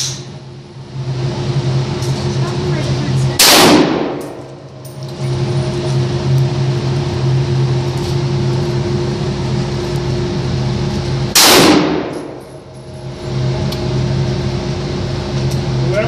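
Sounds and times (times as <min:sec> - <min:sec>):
steady low hum: 0:00.0 - 0:16.0
rifle shot echoing indoors: 0:03.4 - 0:04.3, 0:11.3 - 0:12.4.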